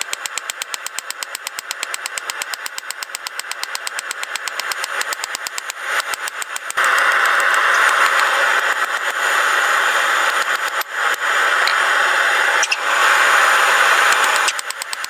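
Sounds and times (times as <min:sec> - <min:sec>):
forge burner hissing: 0:03.1 - 0:15.0.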